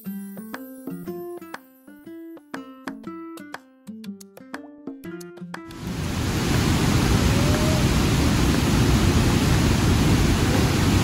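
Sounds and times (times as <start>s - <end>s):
steady rushing noise: 5.7s - 11.0s.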